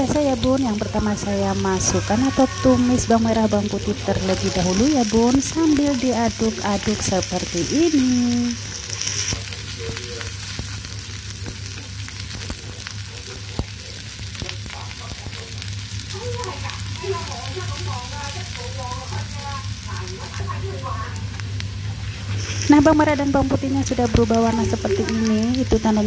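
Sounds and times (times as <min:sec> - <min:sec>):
wooden utensils stirring: 0:00.0 - 0:09.8, 0:21.9 - 0:26.0
shallots and garlic sizzling in oil: 0:00.0 - 0:26.0
steady low hum: 0:00.0 - 0:26.0.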